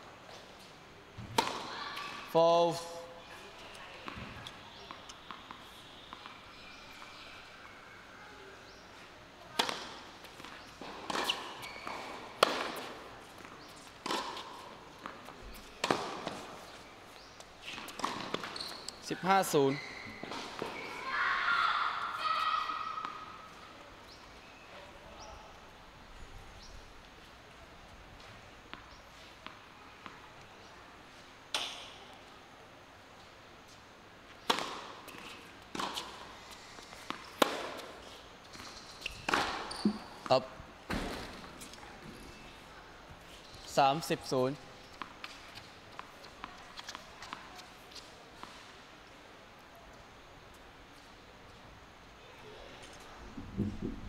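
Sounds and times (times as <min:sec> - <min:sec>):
racket striking tennis ball: 0:01.3 - 0:01.6, 0:09.6 - 0:13.0, 0:15.8 - 0:16.5, 0:34.5 - 0:36.2, 0:37.1 - 0:38.0, 0:39.2 - 0:40.1
tennis serve off racket strings: 0:01.3 - 0:01.7, 0:09.5 - 0:16.8, 0:17.6 - 0:19.4, 0:34.4 - 0:41.7
footsteps on court: 0:44.5 - 0:48.7.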